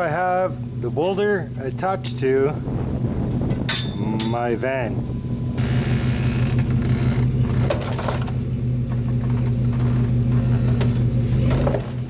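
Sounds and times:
van engine running under load: 0.0 - 12.0
chain clanking and scraping: 3.5 - 4.4, 5.1 - 12.0.

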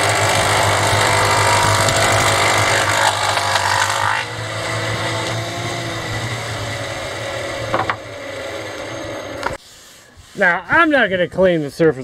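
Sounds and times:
planer motor hum: 0.0 - 9.6
planer rasping cut: 0.0 - 10.6.

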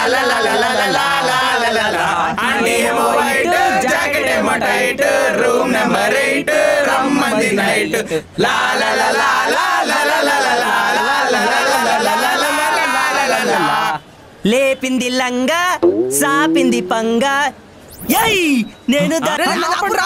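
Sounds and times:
young men singing in chorus: 0.0 - 14.0.

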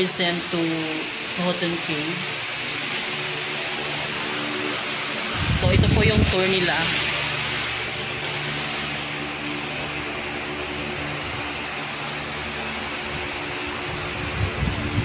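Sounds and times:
machine hum: 0.0 - 15.0
even rushing noise: 3.5 - 15.0.

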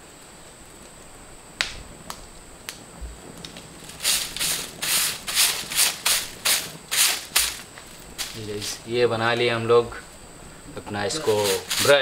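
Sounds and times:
rhythmic scraping strokes: 3.8 - 9.0, 11.2 - 12.0.

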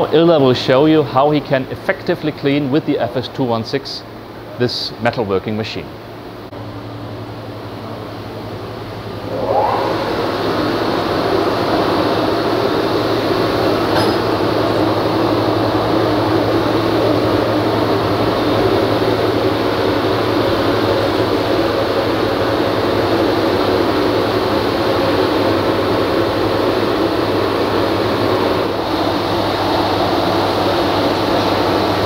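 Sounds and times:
wet and dry vacuum running: 9.2 - 32.0.

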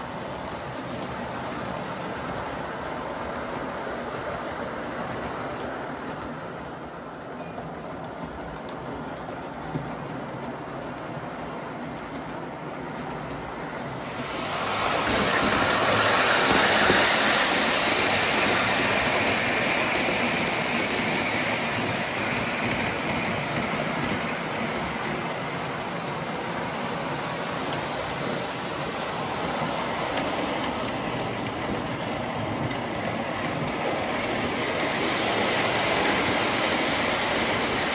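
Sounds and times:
model train wheels rumbling on rails: 0.0 - 37.9.

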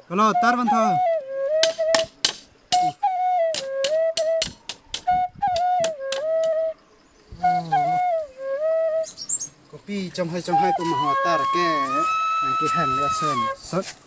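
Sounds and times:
flute melody: 0.0 - 14.0
machete chopping bamboo: 1.6 - 6.3.

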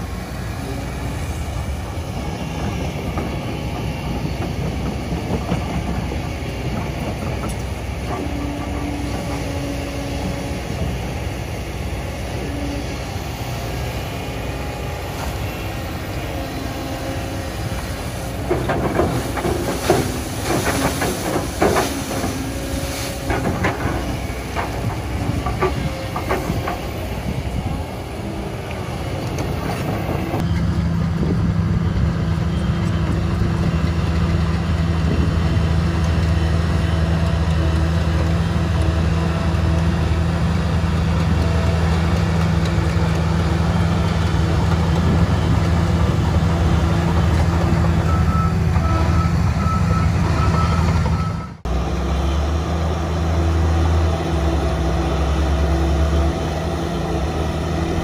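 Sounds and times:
bulldozer diesel engine under load: 0.0 - 58.0
excavator diesel engine working: 0.0 - 58.0
soil dumping into steel truck bed: 18.4 - 25.5.

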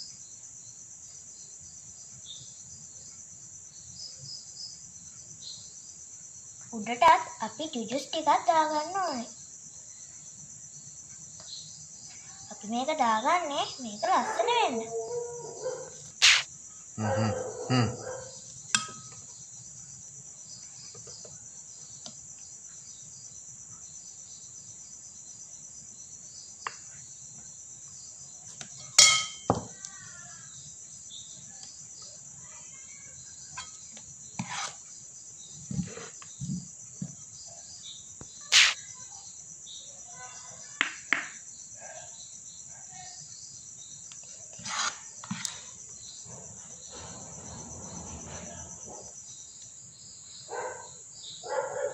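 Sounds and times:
crickets chirring: 0.0 - 51.9
metal ladle clinking on china: 18.8 - 19.1, 29.0 - 29.5.

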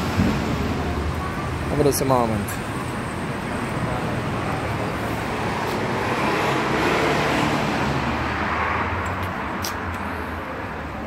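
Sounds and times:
passing vehicle engine and tyres: 0.0 - 11.0.

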